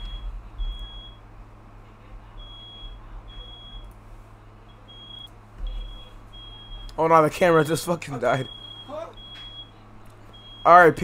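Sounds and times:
smoke alarm beeping: 0:00.0 - 0:01.2, 0:02.4 - 0:03.9, 0:04.7 - 0:07.0, 0:08.4 - 0:11.0.

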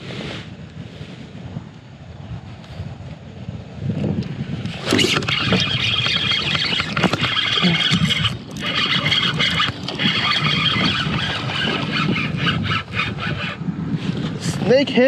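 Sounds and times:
fishing reel whirring: 0:04.7 - 0:14.2.

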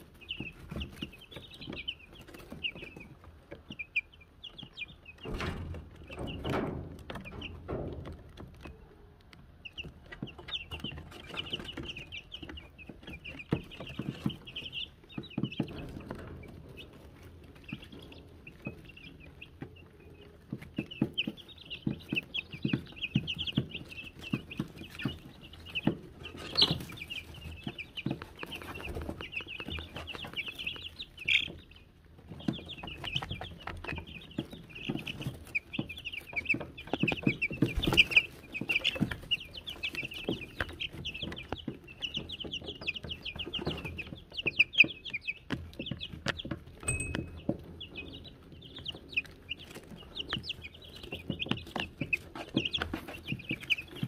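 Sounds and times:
chicks pecking and scratching: 0:00.0 - 0:54.0
chicks peeping: 0:00.0 - 0:54.0
small bell ringing: 0:46.9 - 0:47.4.

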